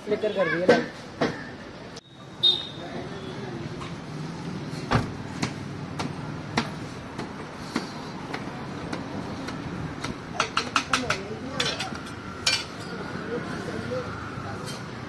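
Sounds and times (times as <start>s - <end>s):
indistinct chatter: 7.6s - 15.0s.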